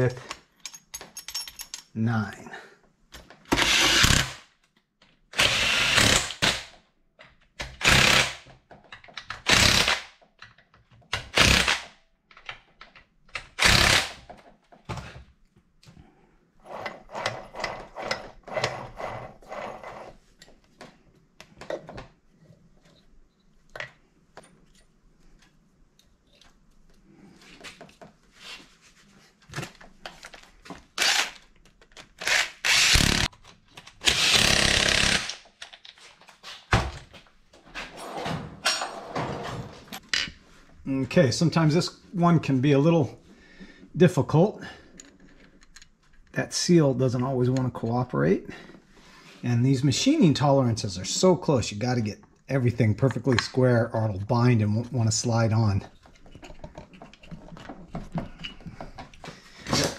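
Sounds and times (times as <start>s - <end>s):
cordless drill bursts: 3.6s - 4.3s, 5.4s - 6.5s, 13.6s - 14.2s, 31.0s - 31.4s, 32.2s - 33.3s, 34.0s - 35.3s.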